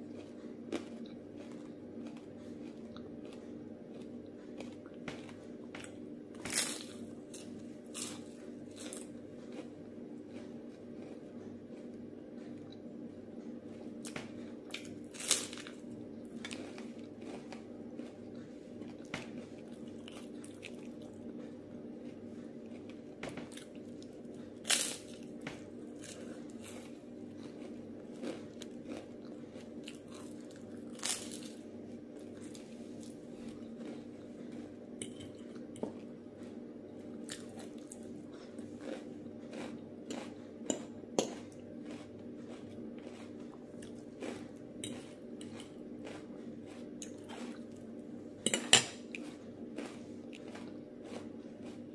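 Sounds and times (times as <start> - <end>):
soft crackling chewing: 0.0 - 51.9
steady low hum: 0.0 - 51.9
crunching bites of rice cake: 14.1 - 18.4, 24.6 - 34.7, 49.0 - 51.9.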